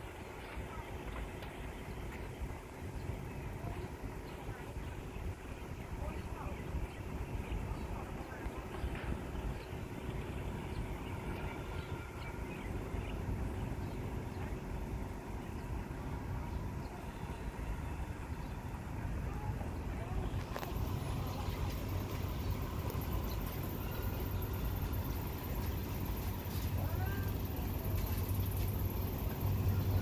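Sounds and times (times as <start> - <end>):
faint high hiss: 15.6 - 30.0
diesel engine idling: 20.3 - 30.0.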